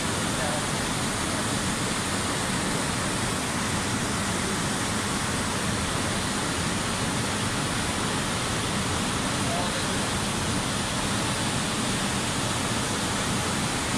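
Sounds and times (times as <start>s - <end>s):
river rushing over boulders: 0.0s - 13.9s.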